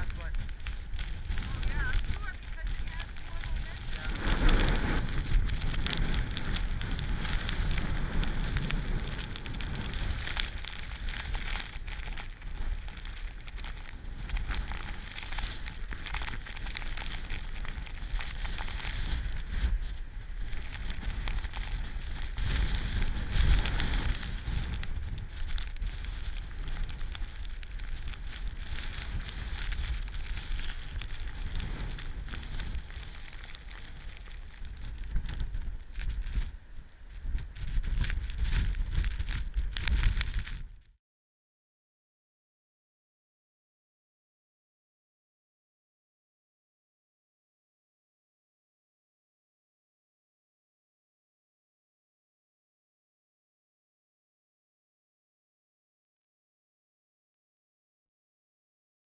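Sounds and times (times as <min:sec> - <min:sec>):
snow pattering on camera: 0:00.0 - 0:41.0
strong wind buffeting microphone: 0:00.0 - 0:41.0.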